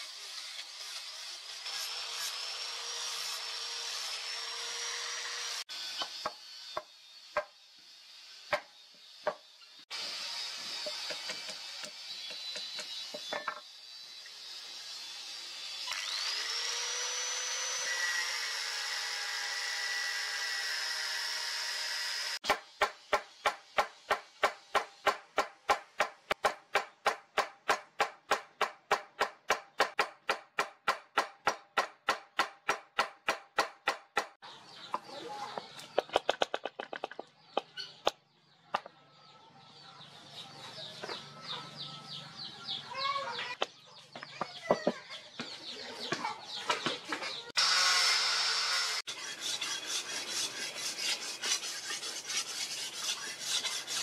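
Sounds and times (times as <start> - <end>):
angle grinder grinding steel: 0.0 - 22.4, 47.4 - 54.0
power tool whining: 0.0 - 22.4, 47.6 - 49.1.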